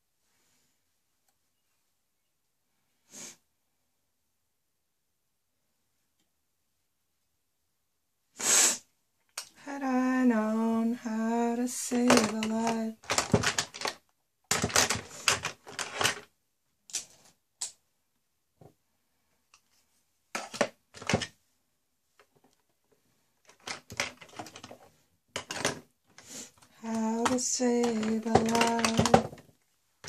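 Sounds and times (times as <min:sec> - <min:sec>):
small hard objects clattering: 0:11.9 - 0:16.3, 0:23.4 - 0:29.6.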